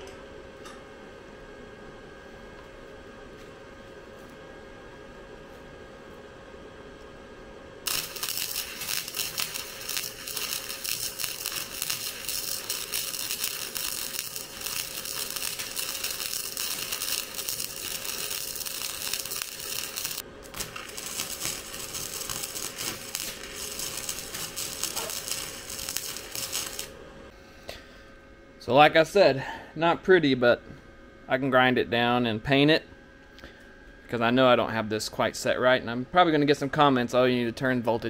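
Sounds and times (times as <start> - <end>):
wire welder arc crackling: 7.8 - 27.3.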